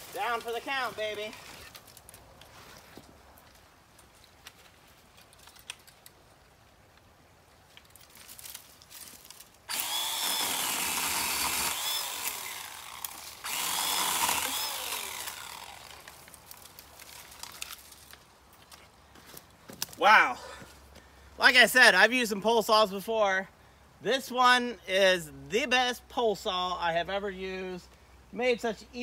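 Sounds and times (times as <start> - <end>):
electric pole saw whining: 9.7 - 16.6.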